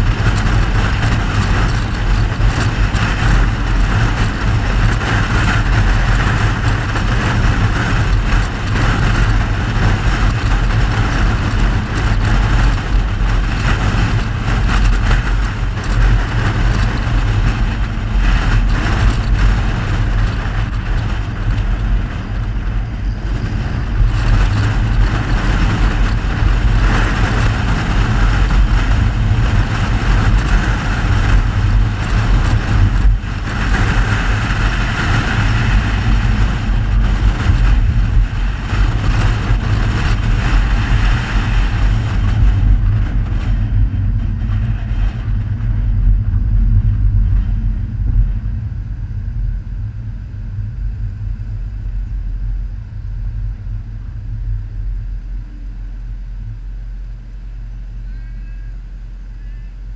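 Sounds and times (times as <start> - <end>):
car driving noise: 0.0 - 59.9.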